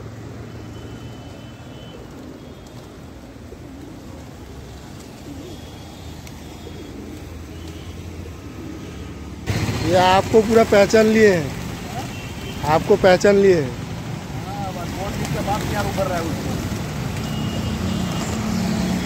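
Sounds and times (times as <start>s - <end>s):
road traffic rumble: 0.0s - 19.0s
pigeons cooing: 0.6s - 12.6s.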